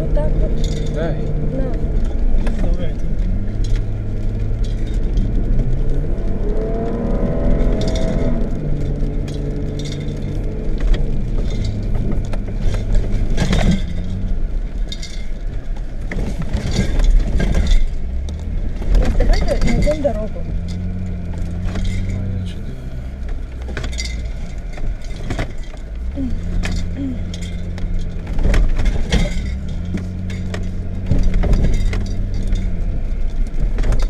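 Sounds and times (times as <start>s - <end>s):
car engine running: 0.0s - 34.0s
road noise: 0.0s - 34.0s
knocks and rattles from bumps: 7.3s - 34.0s.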